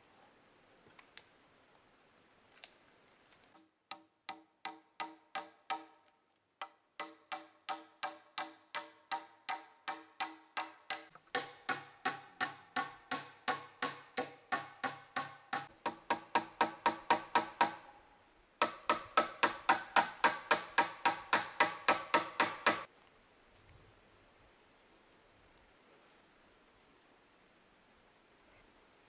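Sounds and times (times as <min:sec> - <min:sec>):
hammer blows on wood: 0:07.0 - 0:18.0, 0:18.6 - 0:22.9.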